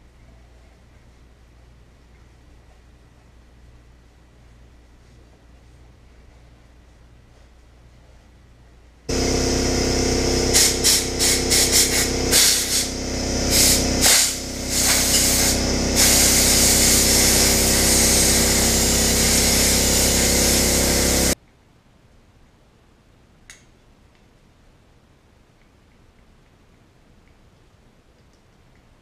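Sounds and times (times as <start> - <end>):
air tool motor hum: 9.1 - 21.4
rushing air blasts: 9.1 - 21.4.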